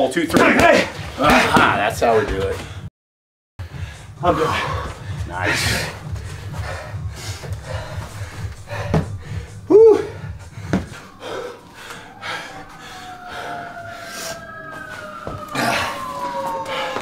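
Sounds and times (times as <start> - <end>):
man panting hard: 3.6 - 17.0.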